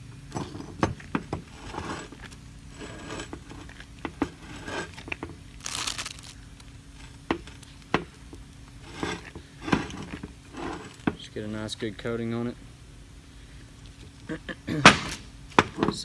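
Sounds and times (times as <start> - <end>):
gloved hands rubbing: 1.5 - 6.4
plastic wrap crinkling: 5.6 - 6.8.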